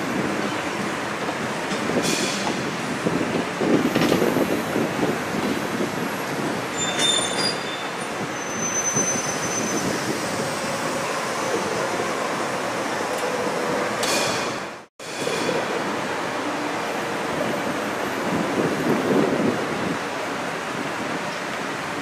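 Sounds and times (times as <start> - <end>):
steel wheels rumbling on rail: 0.0 - 22.0
high-pitched wheel squeals: 6.7 - 10.3.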